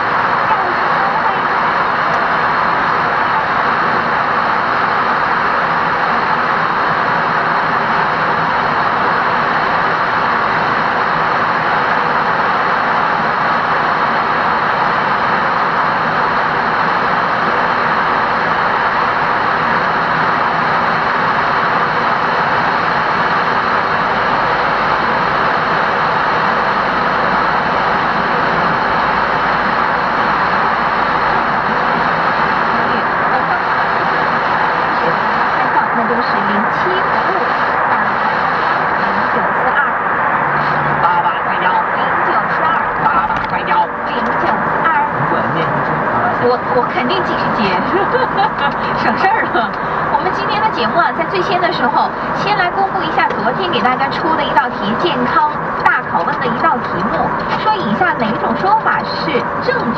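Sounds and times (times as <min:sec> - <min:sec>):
car road and tyre noise: 0:37.3 - 0:41.8.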